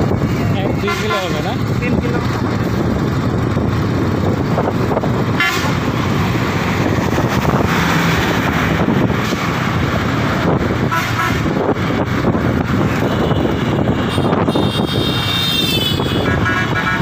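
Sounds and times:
motorcycle road and wind noise: 0.0 - 17.0
vehicle horn toot: 5.4 - 5.7, 13.0 - 17.0.

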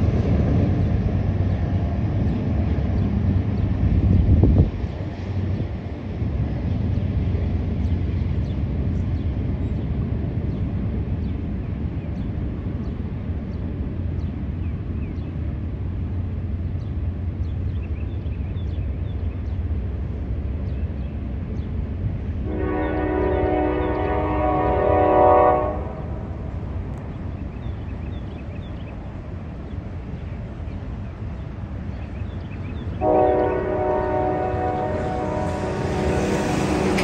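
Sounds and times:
freight train rumbling: 0.0 - 37.0
locomotive air horn: 22.4 - 26.2, 33.0 - 36.6.

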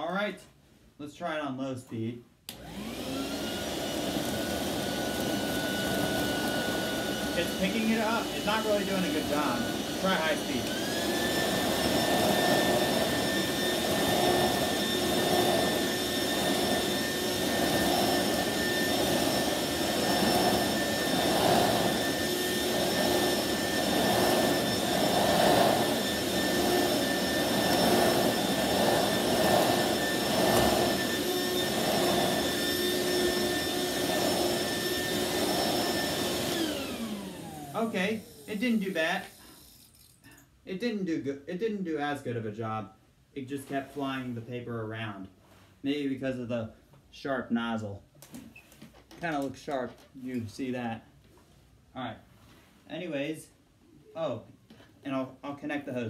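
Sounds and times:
vacuum cleaner motor whine: 2.5 - 39.9.

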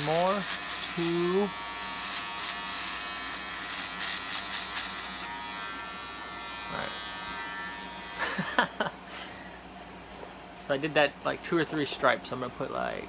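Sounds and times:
electric razor buzzing: 0.0 - 8.9.

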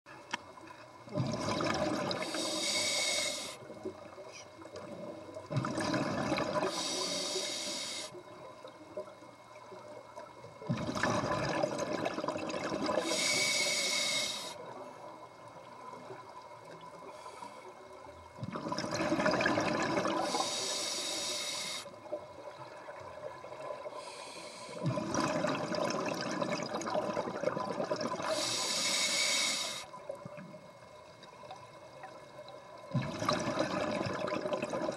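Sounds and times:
regulator hiss: 2.2 - 3.8, 6.6 - 8.3, 13.0 - 15.0, 20.2 - 22.1, 24.0 - 24.8, 28.2 - 30.1.

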